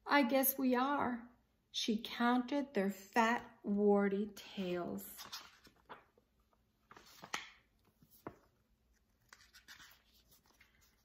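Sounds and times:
paper pages turning: 5.1 - 11.0.

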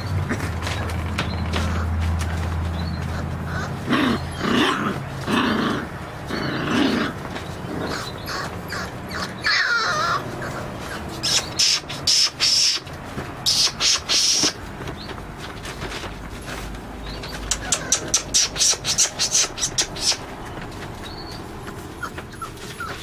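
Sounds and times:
puppy whining: 0.0 - 15.2, 16.5 - 23.0
puppy barking: 7.8 - 12.9, 17.5 - 20.3.

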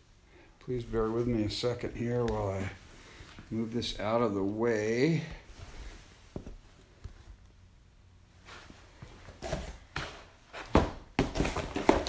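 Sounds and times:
cardboard and wood rustling: 8.5 - 12.0.

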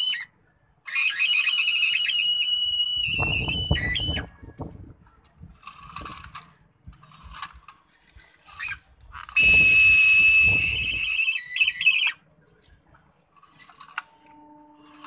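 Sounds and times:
short motor whirrs: 0.9 - 4.3
small electric motor whining: 0.9 - 4.3, 8.4 - 12.2.

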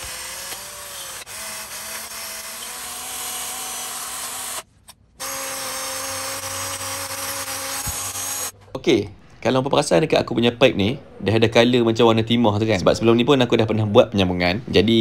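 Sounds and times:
drill sanding copper pipe: 0.0 - 4.6, 5.2 - 8.5.

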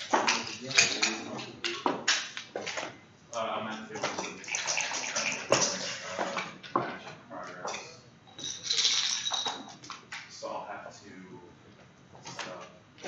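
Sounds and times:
checkers and dice clicking: 0.0 - 2.3, 8.3 - 10.0.

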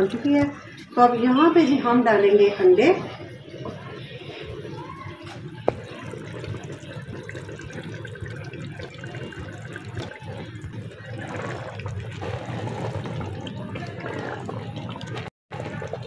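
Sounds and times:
curry simmering in pot: 3.1 - 16.0.

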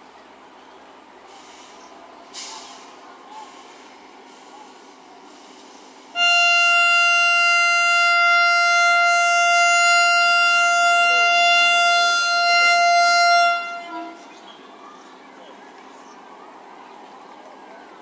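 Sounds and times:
locomotive horn blast: 6.1 - 14.4.

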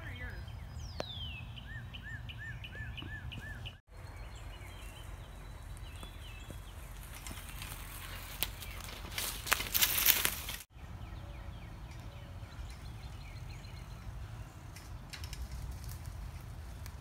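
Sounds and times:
bike tyres crunching leaves: 4.2 - 10.7, 14.3 - 17.0.

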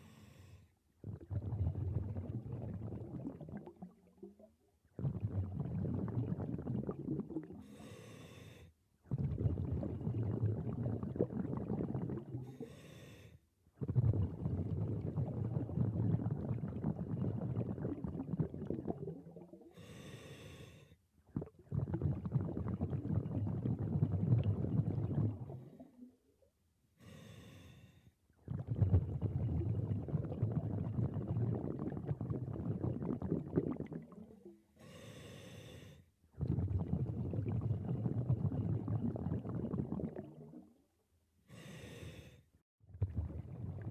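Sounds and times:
regulator hissing inhale: 0.0 - 0.7, 7.6 - 8.7, 12.6 - 13.4, 19.8 - 21.0, 27.0 - 28.1, 34.8 - 36.1, 41.5 - 42.5
bubbling exhaust underwater: 0.0 - 26.4, 28.4 - 40.9, 42.9 - 43.9.

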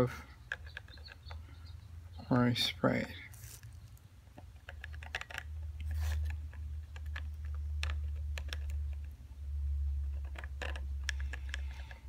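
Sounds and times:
steady low hum: 5.4 - 12.0
light plastic clicks: 10.1 - 12.0.

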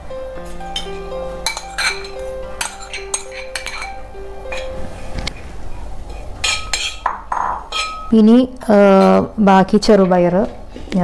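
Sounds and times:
soft background music: 0.0 - 10.7
metal spoon clinking on a pan: 1.5 - 4.6, 6.4 - 8.2.

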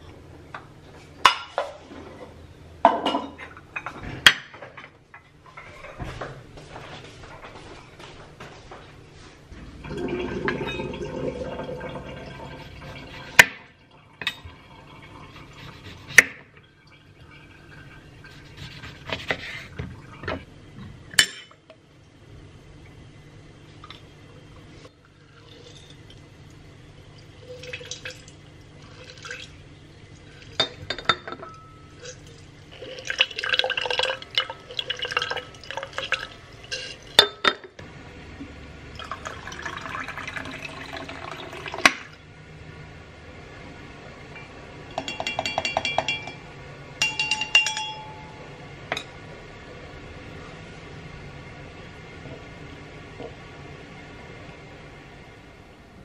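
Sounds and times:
liquid pouring into glass: 9.8 - 13.1, 32.8 - 36.4, 38.9 - 42.1
glass clinking: 9.9 - 11.3, 30.6 - 32.0, 44.9 - 46.4, 47.0 - 49.1.

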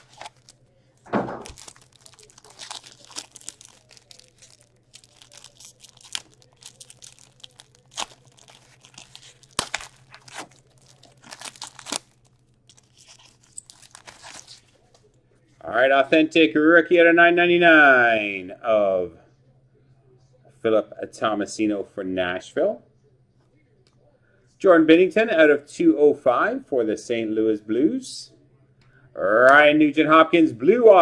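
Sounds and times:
foil wrapper crinkling and tearing: 0.0 - 0.7, 1.3 - 14.9
sharp crackles: 0.0 - 14.6
thump: 1.1 - 1.5.

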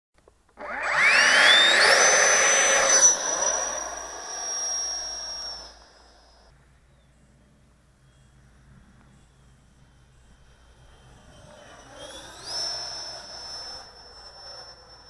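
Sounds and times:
electric ducted fan whine: 0.2 - 15.0.

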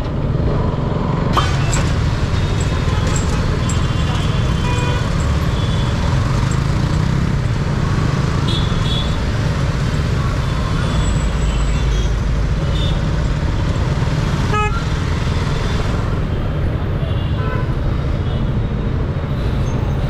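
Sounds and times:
motorcycle engine running: 0.8 - 10.2
vehicle horns tooting: 1.4 - 6.2, 8.4 - 9.3, 14.5 - 14.9.

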